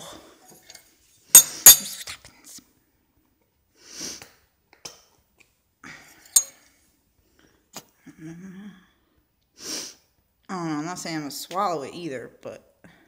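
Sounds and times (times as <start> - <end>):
short sniff: 3.8 - 4.2, 9.6 - 10.0.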